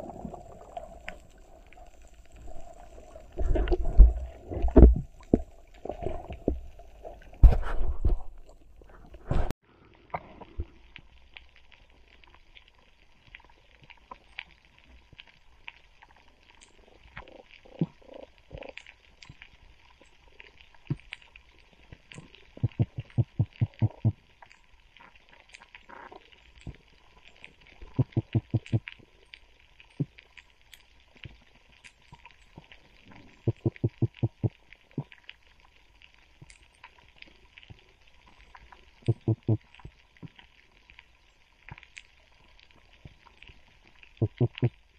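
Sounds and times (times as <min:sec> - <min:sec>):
small underwater clicks: 0:10.1 - 0:44.9.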